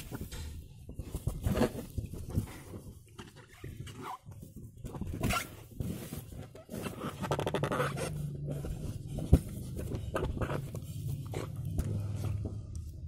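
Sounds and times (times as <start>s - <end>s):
balloon rubbing and squeaking: 0.8s - 12.2s.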